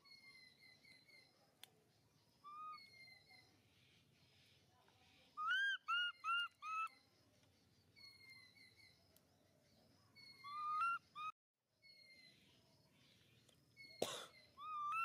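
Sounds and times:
baby monkey squeaky calls: 5.4s - 6.9s, 10.3s - 11.3s, 14.6s - 15.0s.

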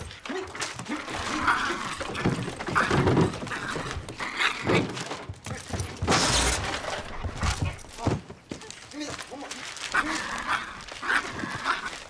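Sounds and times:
thumps and knocks: 0.6s - 8.6s.

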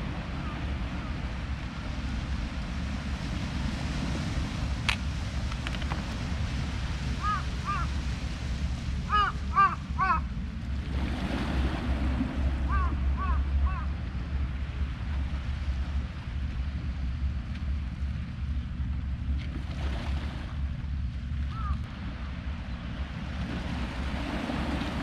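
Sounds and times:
surf on rocks: 0.0s - 16.5s
wind: 0.0s - 25.0s
bird calling: 7.2s - 7.9s, 9.1s - 10.3s, 12.7s - 13.9s, 21.5s - 21.8s.

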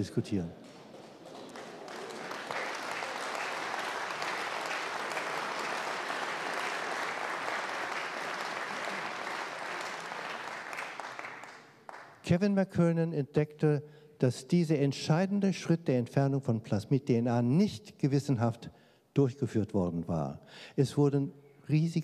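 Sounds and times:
audience applauding: 0.6s - 12.2s.

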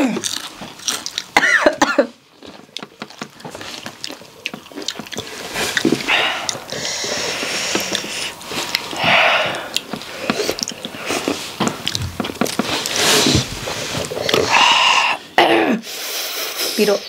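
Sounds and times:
person chewing crunchy chip: 0.0s - 15.3s
hissing breaths through mouth: 5.2s - 11.6s
person sniffing: 5.3s - 11.6s, 12.7s - 17.0s.

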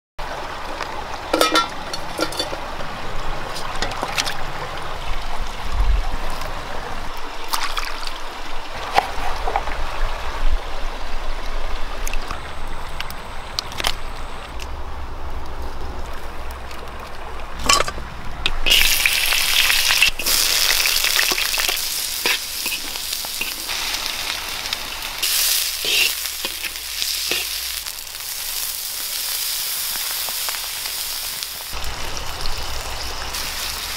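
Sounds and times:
meat sizzling in pan: 18.6s - 32.6s, 33.3s - 33.9s.

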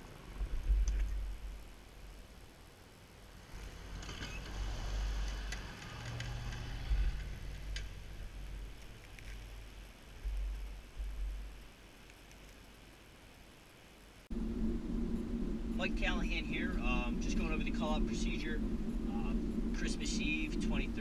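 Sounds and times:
low rumble: 0.0s - 2.4s, 3.5s - 11.8s, 14.2s - 21.0s
plow blade scraping snow: 3.4s - 9.6s, 15.1s - 21.0s
truck engine running: 14.3s - 21.0s.

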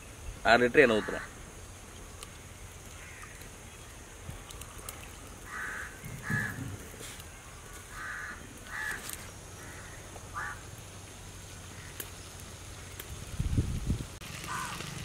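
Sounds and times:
crow cawing: 0.9s - 1.3s, 3.0s - 3.4s, 5.4s - 6.8s, 7.9s - 10.7s, 11.7s - 12.0s, 14.5s - 14.8s.

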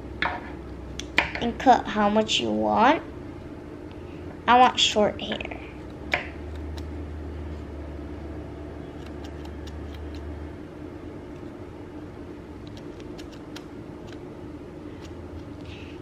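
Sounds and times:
steady low hum: 0.0s - 16.0s
scissors snipping yarn: 5.9s - 6.9s, 8.9s - 10.3s, 12.6s - 14.2s.

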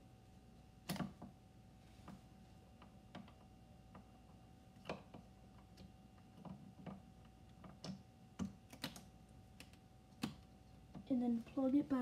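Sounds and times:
faint steady hum: 0.0s - 12.0s
small clicks and taps: 4.8s - 11.2s.

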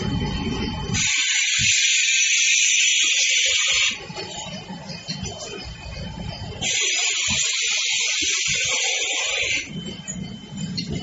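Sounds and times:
compressed air hiss: 1.0s - 4.0s.

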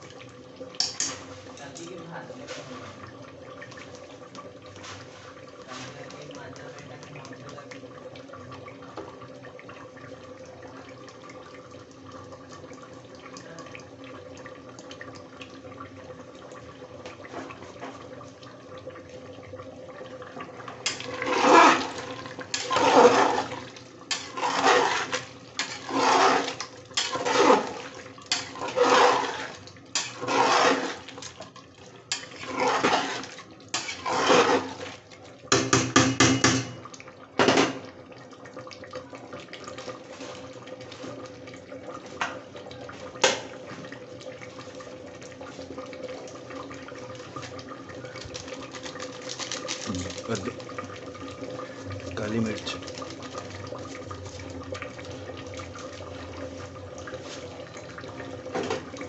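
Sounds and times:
ladle stirring liquid in a pot: 0.0s - 59.0s
ladle scraping a pot: 0.8s - 1.6s, 20.8s - 31.3s, 32.1s - 35.0s.

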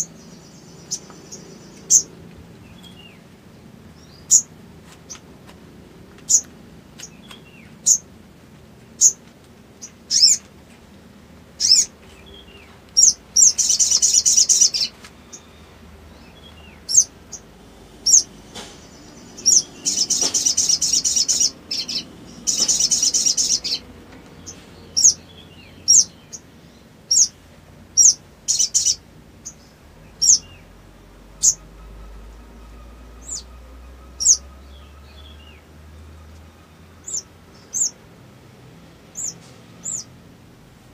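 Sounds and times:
bird twittering: 0.0s - 2.1s, 4.0s - 4.5s, 6.3s - 8.1s, 9.8s - 10.4s, 11.6s - 26.4s, 27.1s - 27.4s, 28.0s - 30.7s, 31.3s - 35.4s, 37.0s - 38.0s
sunbird high chirps: 0.0s - 3.2s, 3.9s - 4.5s, 9.8s - 10.4s, 11.6s - 38.0s, 39.1s - 40.2s.

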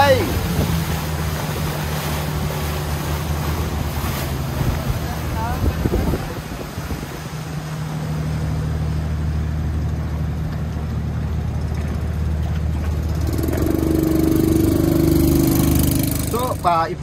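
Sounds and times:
boat engine low hum: 0.0s - 17.0s
higher engine note: 12.7s - 17.0s.

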